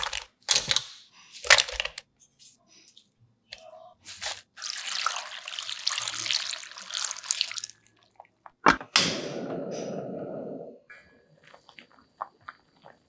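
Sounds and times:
water pouring into a pot: 0:04.5 - 0:08.2.

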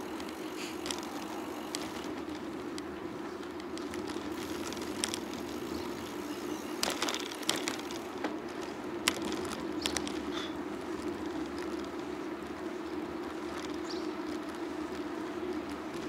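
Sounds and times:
sharp clicks and rattles: 0:00.0 - 0:12.0
bicycle tyres rolling hum: 0:00.0 - 0:16.0.

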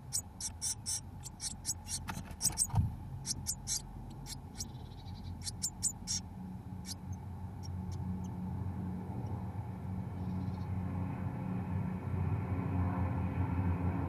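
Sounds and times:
nestlings scratching and rustling: 0:00.0 - 0:04.7
steady low hum: 0:00.0 - 0:14.0.

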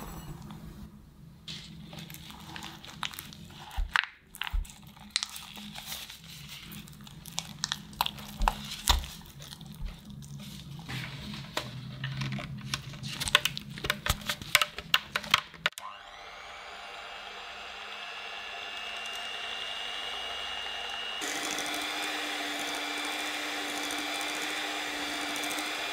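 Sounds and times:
spatula squishing cream cheese: 0:01.7 - 0:10.9
electric hand mixer clattering: 0:15.7 - 0:25.9.

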